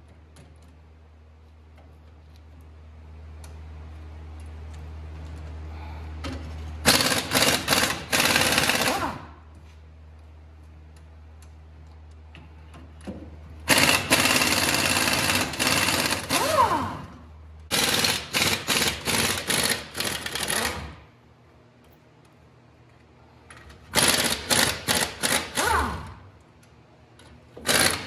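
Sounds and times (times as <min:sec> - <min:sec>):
steady low hum: 0:00.0 - 0:28.0
impact wrench running in bursts: 0:06.8 - 0:09.3, 0:13.7 - 0:17.1, 0:17.7 - 0:21.0, 0:23.9 - 0:26.2, 0:27.6 - 0:28.0.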